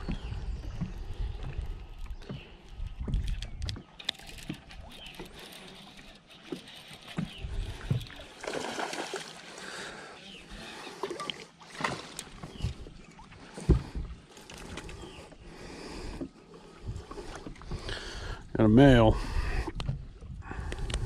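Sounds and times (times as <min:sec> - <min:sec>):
wind rumbling on microphone: 0:00.0 - 0:05.4, 0:07.2 - 0:08.3, 0:16.8 - 0:21.0
water lapping against boat hull: 0:00.0 - 0:21.0
small clicks and knocks: 0:03.0 - 0:08.1.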